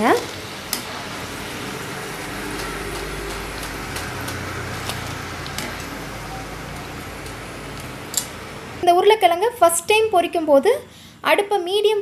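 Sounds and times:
deep-frying sizzle with pops: 0.0s - 8.6s.

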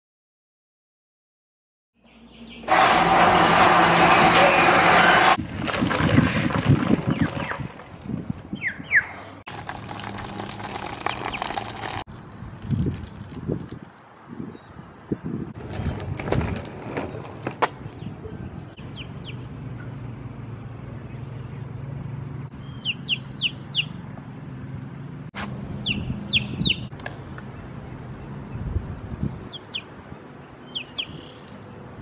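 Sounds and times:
skateboard wheels rolling on concrete: 2.7s - 8.5s, 9.5s - 14.4s, 15.5s - 18.2s
chick peeping: 22.8s - 23.9s, 30.7s - 31.2s.

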